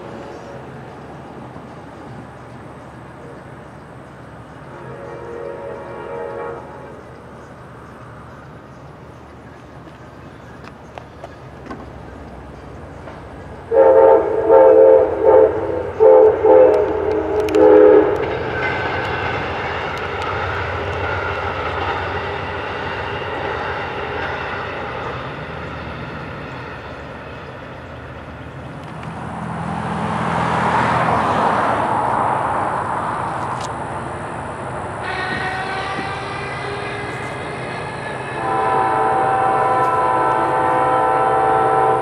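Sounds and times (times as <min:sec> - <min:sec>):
train passing rumble: 0:00.0 - 0:42.0
locomotive horn blasts: 0:04.7 - 0:07.2, 0:13.7 - 0:18.4, 0:35.0 - 0:42.0.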